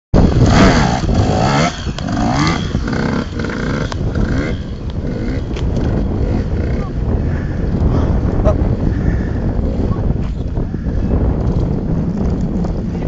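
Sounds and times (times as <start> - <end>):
motocross bike engine revving: 0.2 - 8.4.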